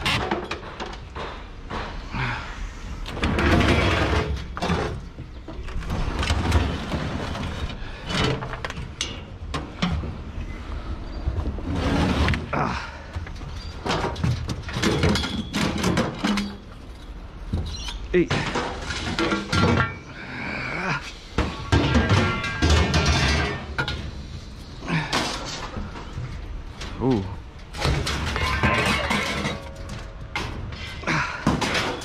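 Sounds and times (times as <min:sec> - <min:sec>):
sheet metal scraping: 0:03.2 - 0:05.0
metal knocks and thuds: 0:21.4 - 0:24.0, 0:27.6 - 0:32.0.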